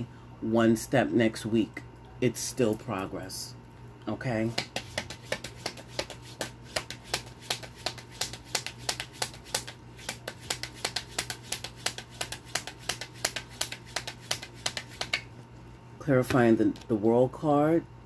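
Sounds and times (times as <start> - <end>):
cards being shuffled: 4.4 - 15.3.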